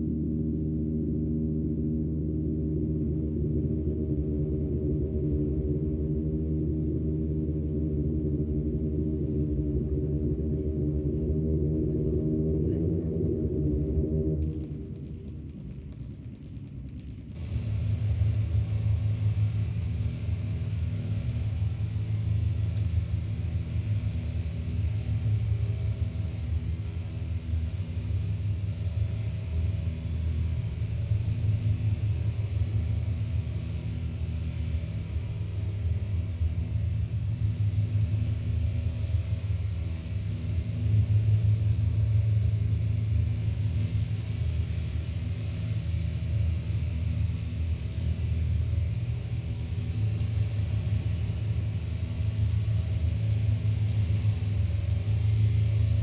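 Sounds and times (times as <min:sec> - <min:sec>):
deep synthesizer drone: 0:00.0 - 0:15.2
low rumbling synthesizer drone: 0:00.0 - 0:56.0
high steady tones: 0:14.4 - 0:17.5.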